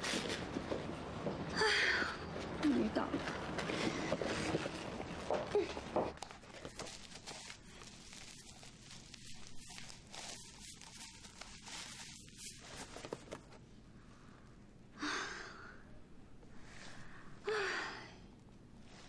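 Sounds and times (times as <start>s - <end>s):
paper packaging rustling: 3.2s - 13.6s.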